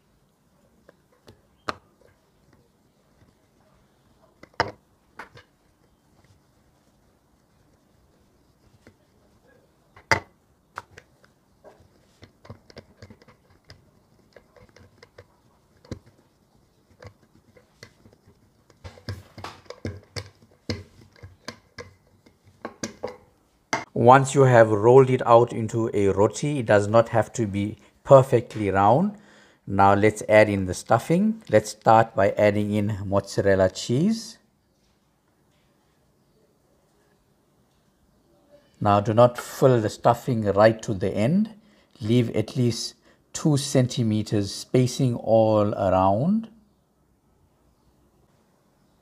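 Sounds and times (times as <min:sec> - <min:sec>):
rolling pin knocking on stone: 0:10.0 - 0:16.1, 0:17.0 - 0:23.9.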